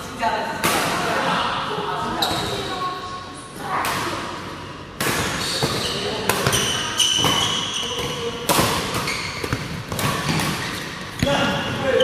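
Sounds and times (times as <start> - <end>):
shoes squeaking on court floor: 2.2 - 2.7, 5.2 - 12.0
rackets hitting shuttlecock: 5.0 - 11.4.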